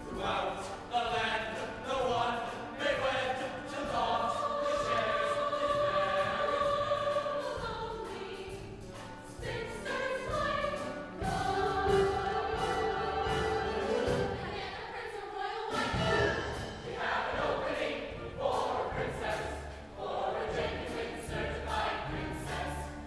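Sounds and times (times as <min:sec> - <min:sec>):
chorus singing: 0:00.0 - 0:23.0
orchestra playing: 0:10.8 - 0:14.6, 0:15.7 - 0:19.4.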